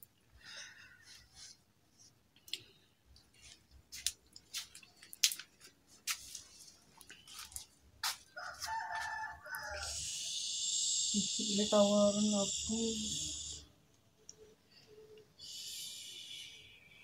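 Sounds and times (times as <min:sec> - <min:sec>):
soft rustles: 0:03.2 - 0:09.1
drawn-out steady-pitched call: 0:09.1 - 0:13.7, 0:14.8 - 0:17.0.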